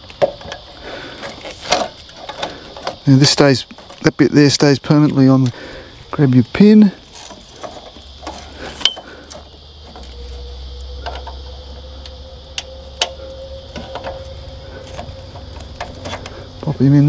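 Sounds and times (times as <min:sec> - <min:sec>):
insect drone: 0:00.0 - 0:17.0.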